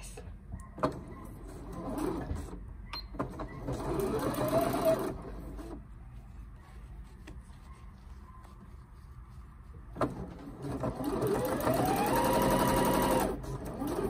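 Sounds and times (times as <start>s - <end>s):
sewing machine motor whining: 3.3s - 5.8s, 10.4s - 14.0s.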